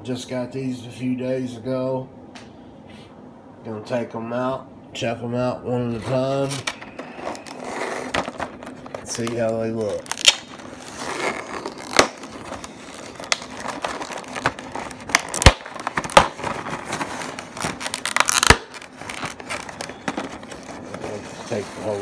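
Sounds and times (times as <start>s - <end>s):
plastic packaging crinkling: 6.3s - 22.0s.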